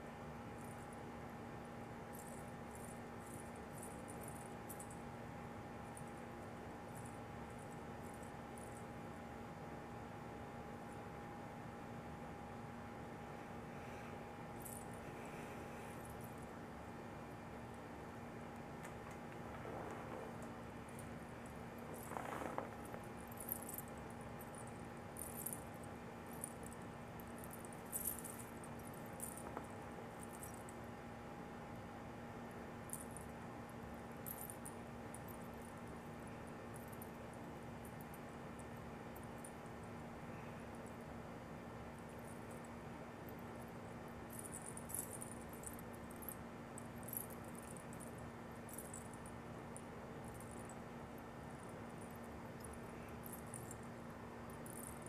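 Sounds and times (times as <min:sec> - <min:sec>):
low electrical hum: 0:00.0 - 0:55.0
faint high-pitched crackles: 0:18.8 - 0:25.6.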